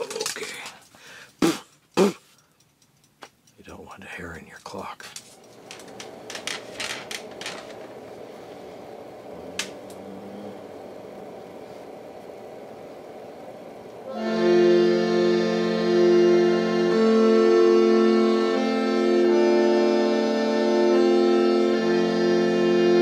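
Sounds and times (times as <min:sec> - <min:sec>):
faint steady hum: 0:00.0 - 0:23.0
reed organ chord: 0:05.4 - 0:23.0.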